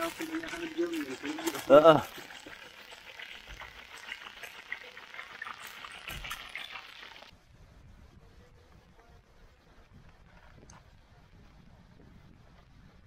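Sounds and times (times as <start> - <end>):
fish frying in hot oil: 0.0 - 7.3.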